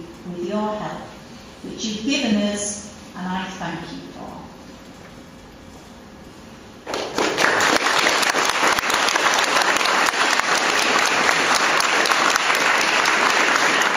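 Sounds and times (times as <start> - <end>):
audience applauding: 6.8 - 13.9.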